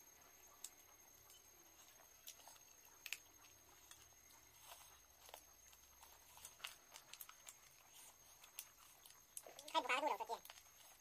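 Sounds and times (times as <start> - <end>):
chewing and lip-smacking: 2.2 - 11.0.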